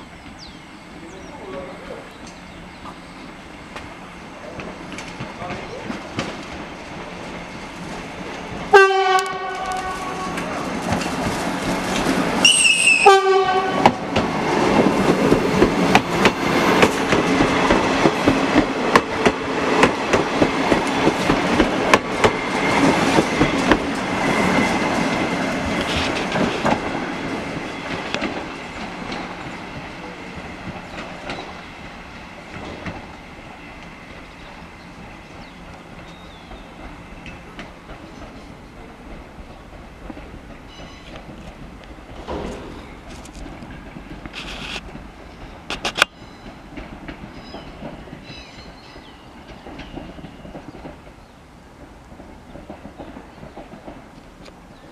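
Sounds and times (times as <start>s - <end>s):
train wheels clattering over rail joints: 3.7s - 54.9s
two-tone train horn: 8.7s - 10.6s, 12.4s - 14.0s.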